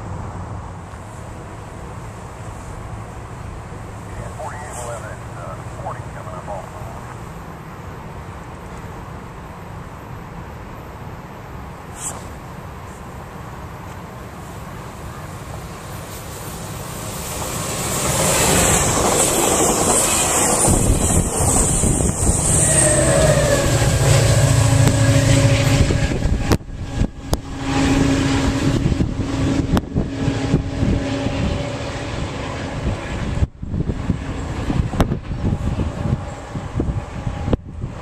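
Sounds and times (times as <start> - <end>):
diesel locomotive engine droning: 0.0 - 38.0
train wheel and rail noise: 0.0 - 38.0.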